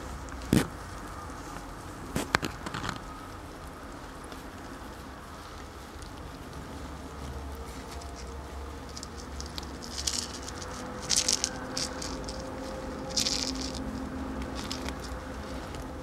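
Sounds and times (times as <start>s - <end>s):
cat toy ball rattling: 7.8s - 15.9s.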